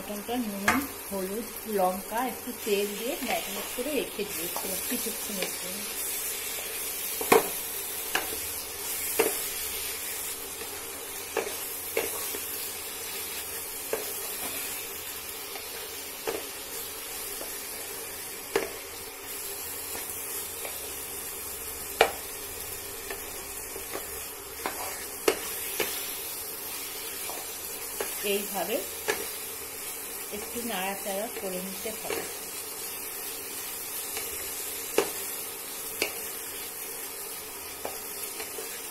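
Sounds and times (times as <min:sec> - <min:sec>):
meat sizzling in oil: 0:00.0 - 0:38.9
wooden spatula scraping a pan: 0:24.0 - 0:26.1.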